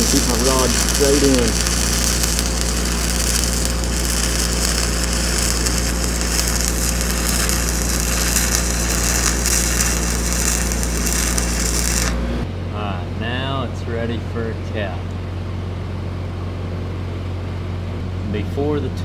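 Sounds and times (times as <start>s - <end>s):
welding arc sizzling: 0.0s - 12.5s
steady low hum: 0.0s - 19.0s.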